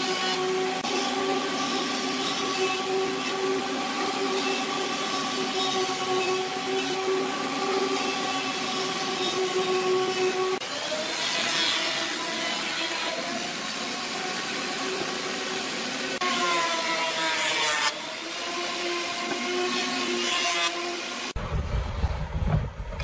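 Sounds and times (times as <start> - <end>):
wood lathe humming: 0.0 - 21.4
low rumble: 21.4 - 23.0.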